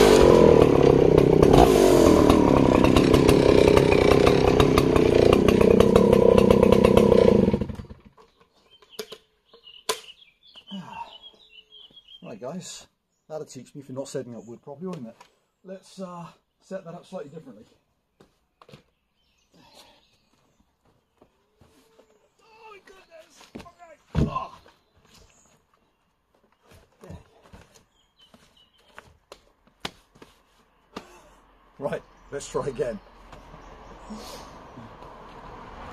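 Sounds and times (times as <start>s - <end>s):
chainsaw cutting log: 0.0s - 8.3s
birds chirping faintly: 8.1s - 35.4s
wooden logs knocking: 23.4s - 24.7s.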